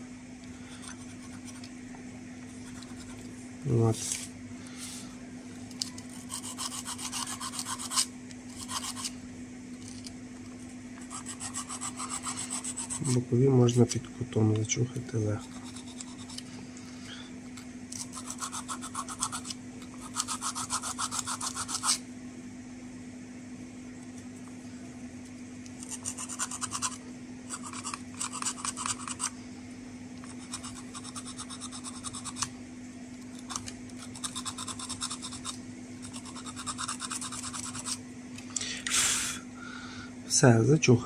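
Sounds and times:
steady low hum: 0.0 - 41.0
sandpaper rubbing on metal: 6.1 - 9.2, 11.1 - 13.2, 34.1 - 38.0.

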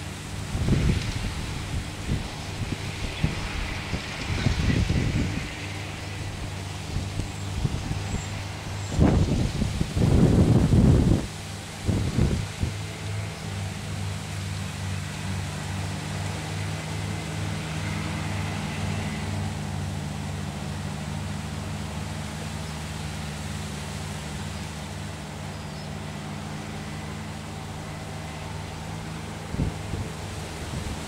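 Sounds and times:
diesel engine throbbing hum: 0.0 - 31.0.

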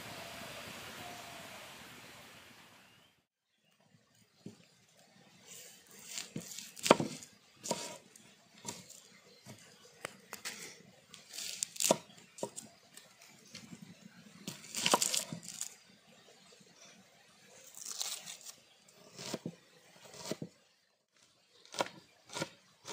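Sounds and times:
knife scraping onion skin: 6.0 - 8.0, 11.2 - 12.1, 14.5 - 15.7, 17.8 - 20.4.

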